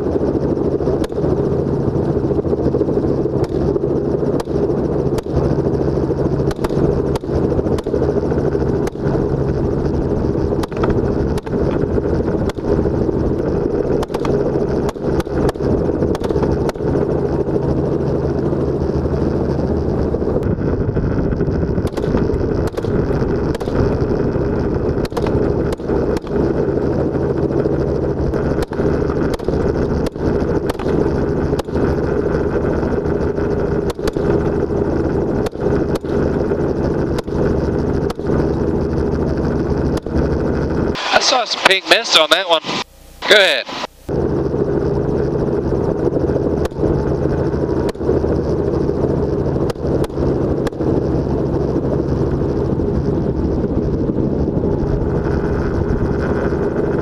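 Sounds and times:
helicopter engine and rotor drone: 0.0s - 57.0s.

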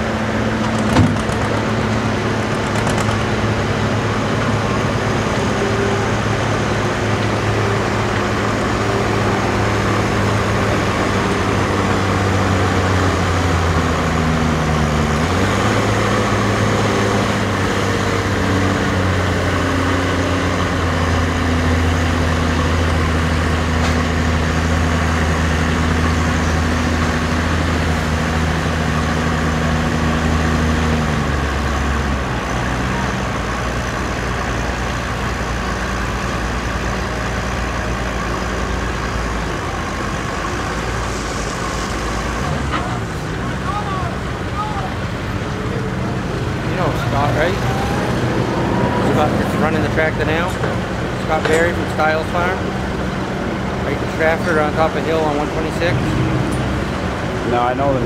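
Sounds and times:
tractor engine working under load: 0.0s - 58.0s.

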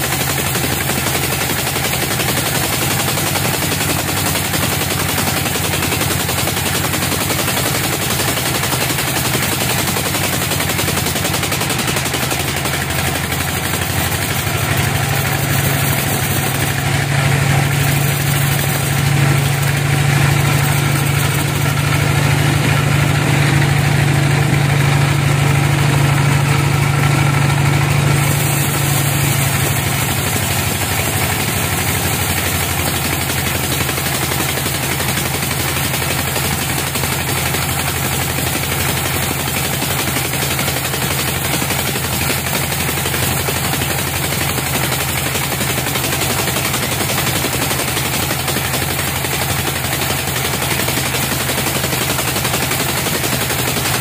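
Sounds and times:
band saw cutting log: 0.0s - 54.0s
deep machine hum: 4.4s - 34.1s.

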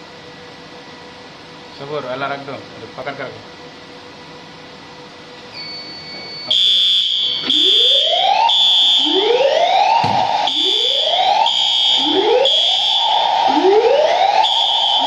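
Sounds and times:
high-pitched pulsing beep: 5.5s - 9.1s
rising sweeping alarm tone: 5.6s - 15.0s.

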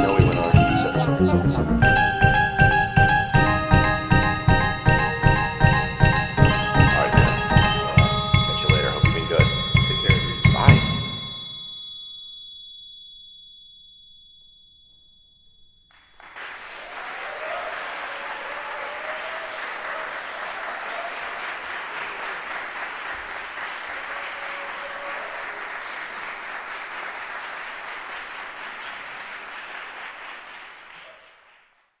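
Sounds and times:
audience applauding: 16.0s - 32.0s.

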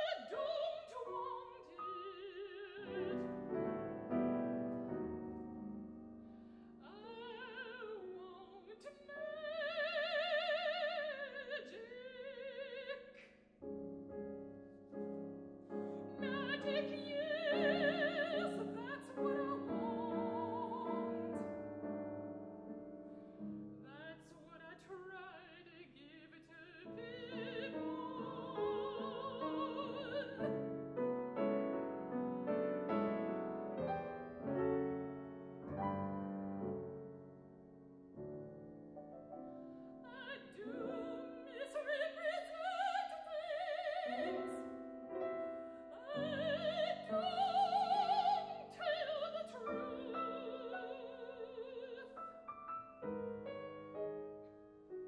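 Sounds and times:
operatic soprano singing: 0.0s - 3.7s, 6.8s - 13.3s, 16.0s - 21.6s, 23.8s - 30.7s, 40.0s - 44.8s, 45.7s - 52.4s
grand piano: 0.0s - 55.0s.

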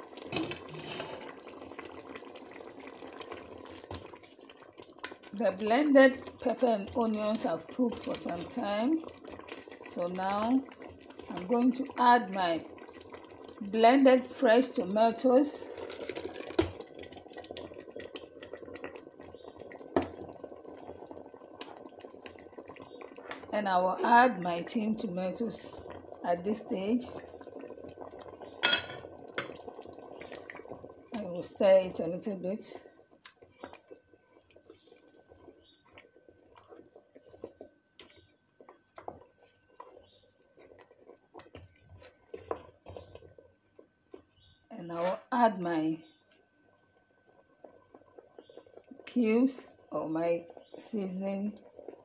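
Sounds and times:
wet squelching of stew: 0.0s - 5.3s, 8.0s - 9.9s, 12.6s - 13.6s, 15.6s - 23.5s, 32.9s - 45.3s.

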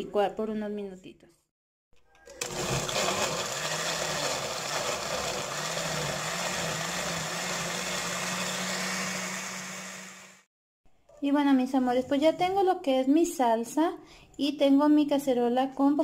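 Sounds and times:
blender motor whirring: 2.2s - 10.5s.

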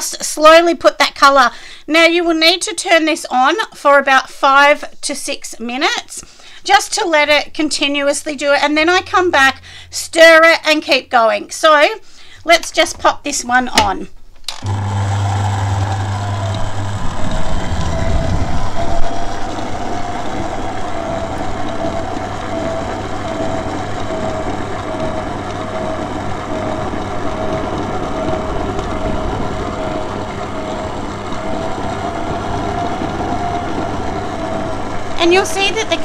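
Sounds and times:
stand mixer motor whine: 14.5s - 36.0s.

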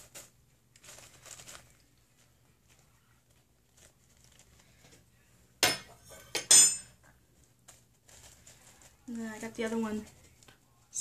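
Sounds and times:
handling rustles: 0.0s - 5.2s, 7.2s - 10.7s
metal spoon clinking on crockery: 5.6s - 7.0s.

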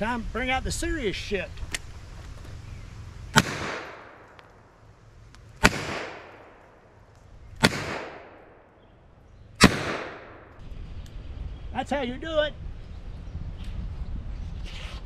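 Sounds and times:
revolver shots with echo: 3.3s - 4.3s, 5.6s - 6.8s, 7.6s - 8.6s, 9.6s - 10.5s.

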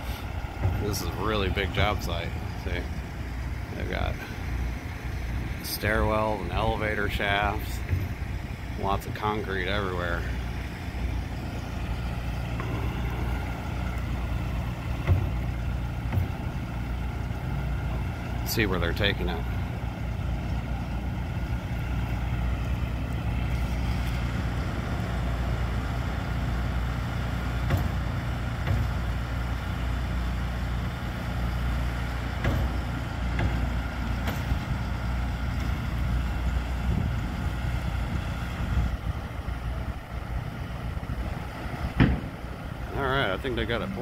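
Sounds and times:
engine idling: 0.0s - 44.0s
faint knocks: 12.4s - 17.3s.

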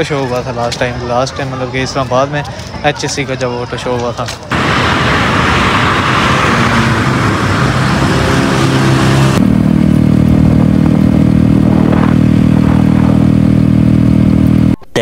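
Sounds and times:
rushing wind noise: 4.5s - 9.5s, 10.1s - 14.7s
motorcycle accelerating: 4.5s - 14.8s
motorcycle engine steady drone: 4.5s - 15.0s.

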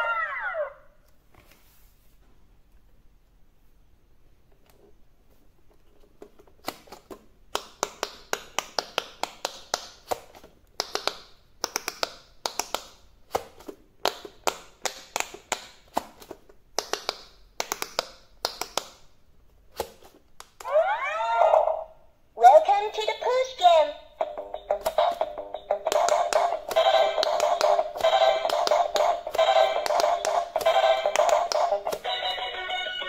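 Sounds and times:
rising electronic tune: 0.0s - 0.9s
popping clicks of toy: 24.7s - 32.2s.

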